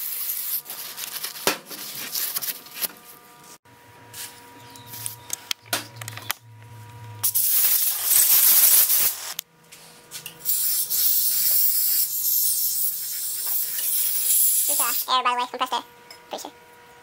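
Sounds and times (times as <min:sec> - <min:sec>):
aerosol spray hiss: 0:07.2 - 0:09.4, 0:10.4 - 0:15.0
compressed-air blow gun blasting: 0:07.2 - 0:09.4.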